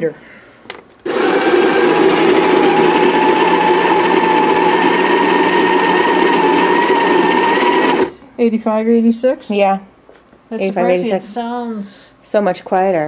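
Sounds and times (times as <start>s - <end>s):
coffee grinder whine and hiss: 1.1s - 8.1s.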